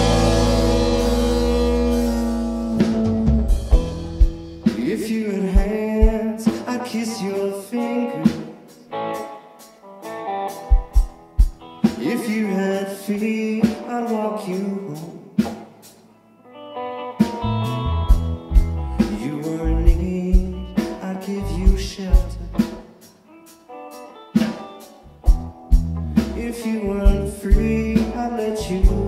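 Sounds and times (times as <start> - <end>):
bass guitar: 0.0 - 6.8, 17.2 - 22.8, 24.3 - 29.0
electric guitars with bent notes: 0.0 - 29.0.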